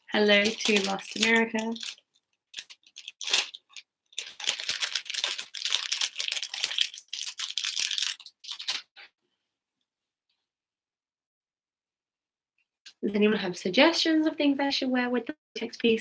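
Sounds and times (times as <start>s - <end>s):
plastic bag crinkling: 0.0s - 9.0s.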